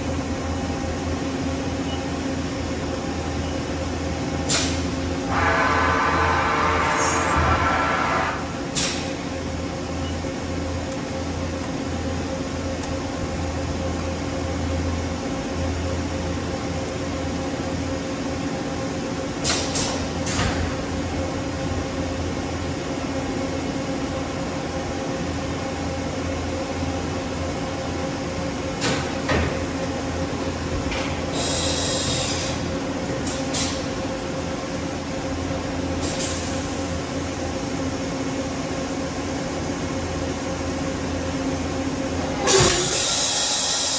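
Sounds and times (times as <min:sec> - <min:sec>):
machining center humming: 0:00.0 - 0:19.4.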